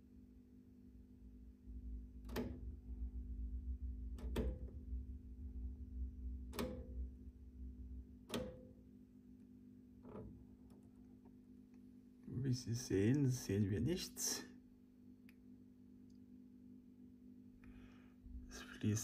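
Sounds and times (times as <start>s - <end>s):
steady low hum: 0.0s - 19.0s
rotary switch clicking: 2.2s - 2.7s, 4.1s - 4.8s, 6.5s - 7.0s, 8.3s - 8.8s.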